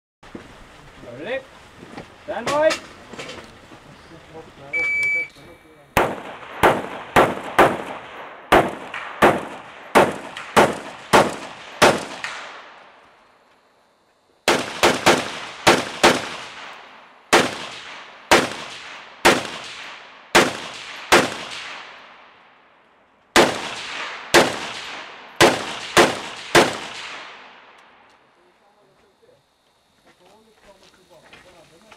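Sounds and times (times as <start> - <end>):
rifle shots with echo: 6.0 - 13.0, 14.5 - 22.6, 23.3 - 28.0.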